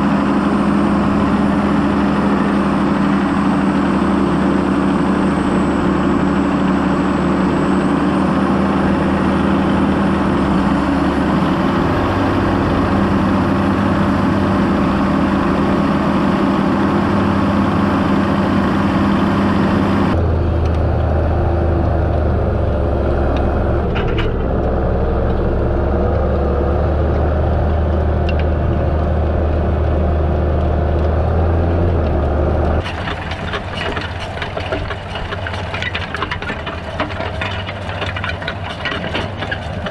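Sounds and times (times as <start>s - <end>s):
tractor diesel engine running: 0.0s - 39.9s
cultivator rollers rattling: 0.1s - 19.7s, 22.2s - 26.2s, 32.1s - 39.9s.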